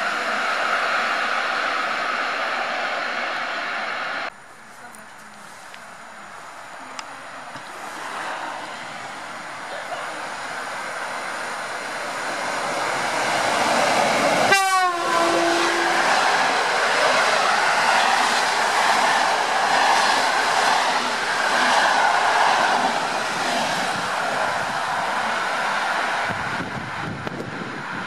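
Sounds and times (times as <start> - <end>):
train wheels on rails: 0.0 - 28.0
train horn blast: 14.5 - 16.0.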